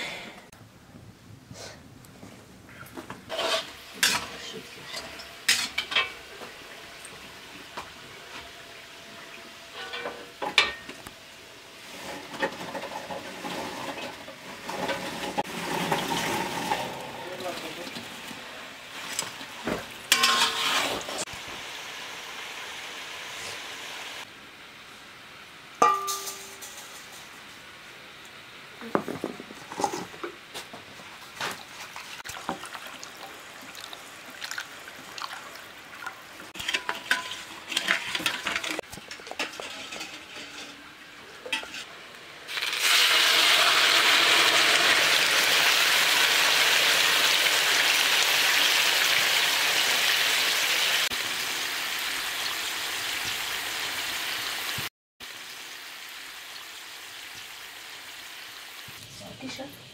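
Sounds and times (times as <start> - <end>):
metal dishes clinking: 3.3 - 6.3, 9.7 - 11.0, 20.1 - 21.1, 25.8 - 27.4, 36.5 - 41.9
liquid pouring with a hiss: 31.8 - 36.4.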